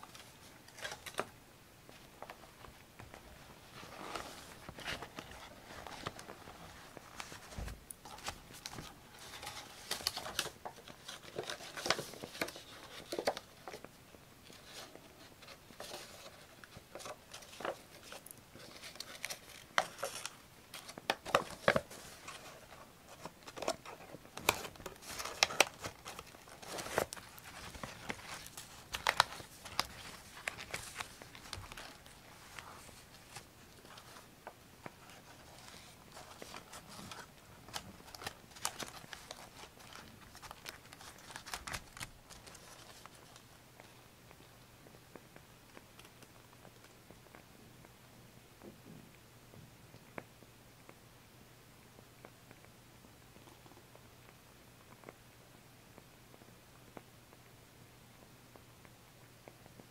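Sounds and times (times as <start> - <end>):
paper rustling and crinkling: 0.0 - 1.3, 1.9 - 44.0.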